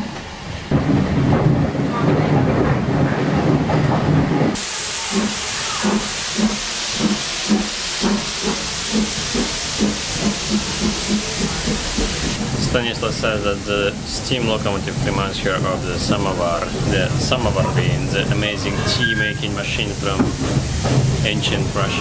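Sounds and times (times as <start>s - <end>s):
train running rumble: 0.0s - 22.0s
locomotive exhaust chuffs: 4.6s - 18.4s
steam hiss: 4.6s - 22.0s.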